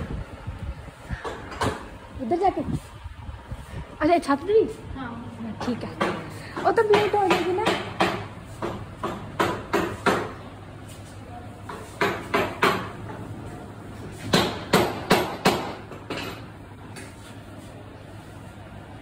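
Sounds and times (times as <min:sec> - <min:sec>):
sharp knocks: 0:01.2 - 0:01.9, 0:05.6 - 0:10.4, 0:11.7 - 0:13.2, 0:14.2 - 0:16.5.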